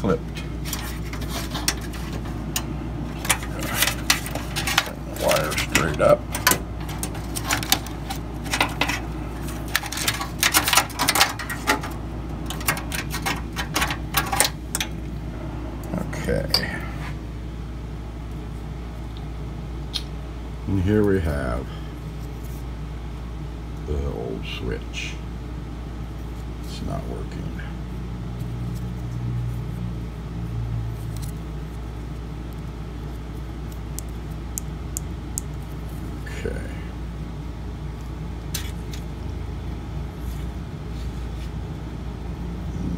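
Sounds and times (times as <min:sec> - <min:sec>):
steady low hum: 0:00.0 - 0:42.9
cable clicking and rattling: 0:00.4 - 0:15.1.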